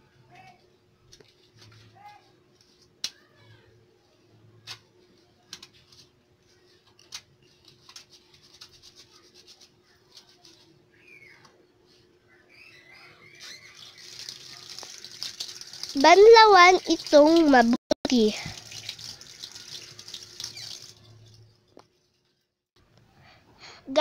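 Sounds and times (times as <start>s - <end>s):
soapy hands rubbing: 7.6s - 10.6s, 13.3s - 22.3s
tap water running: 13.4s - 21.9s.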